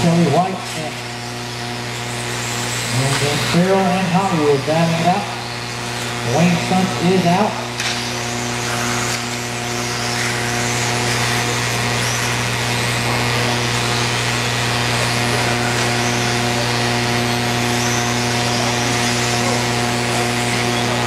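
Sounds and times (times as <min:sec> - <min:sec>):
electric motors whining: 0:00.0 - 0:21.0
steady low hum: 0:00.0 - 0:21.0.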